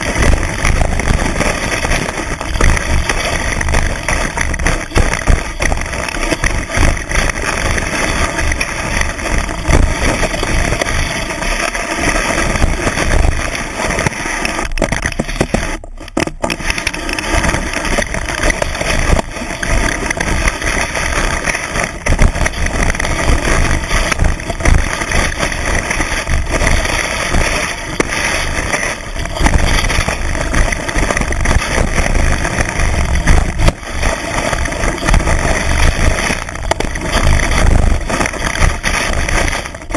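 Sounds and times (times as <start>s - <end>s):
skis rushing through snow: 0.0s - 39.9s.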